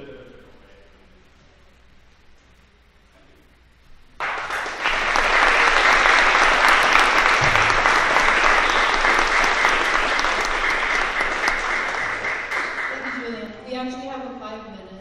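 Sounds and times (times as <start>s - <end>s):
audience applauding: 4.2s - 13.5s.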